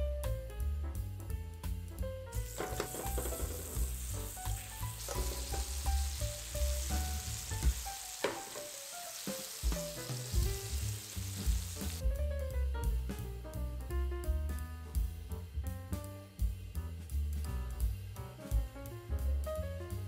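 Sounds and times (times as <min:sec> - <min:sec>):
jazz music: 0:00.0 - 0:20.0
pancakes sizzling in a pan: 0:02.3 - 0:12.0.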